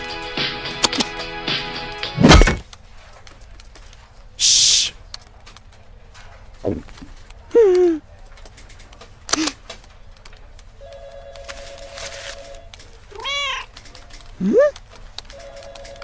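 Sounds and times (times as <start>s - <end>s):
cat meowing: 13.1s - 13.7s.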